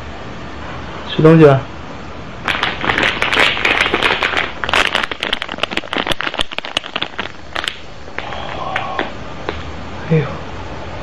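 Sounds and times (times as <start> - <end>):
packaging crinkling: 2.4 - 7.8.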